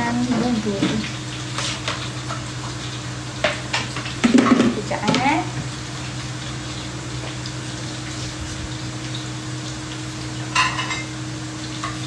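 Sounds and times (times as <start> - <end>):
kitchen hum and hiss: 0.0 - 12.0
kitchenware clinking: 10.5 - 11.2.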